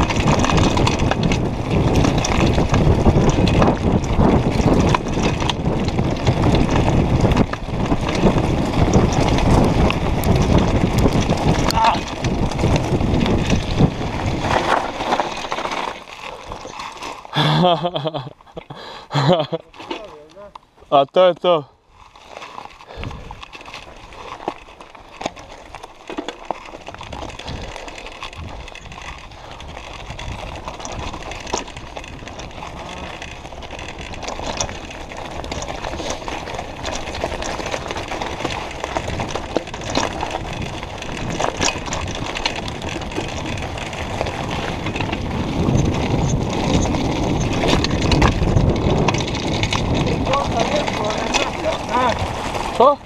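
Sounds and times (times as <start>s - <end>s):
bike rattling and clicking: 0.0s - 53.0s
bike tyres rolling over gravel: 0.0s - 53.0s.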